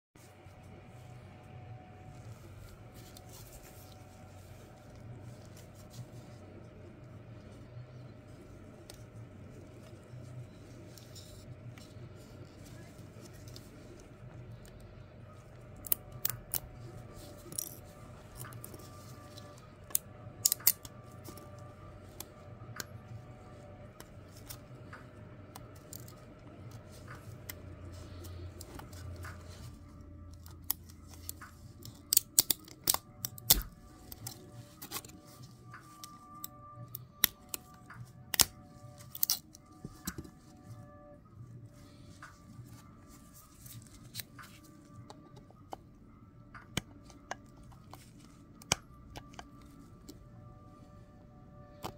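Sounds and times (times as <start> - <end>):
quiet lo-fi music: 0.2 - 51.9
plastic snapping and crackling: 30.3 - 40.3.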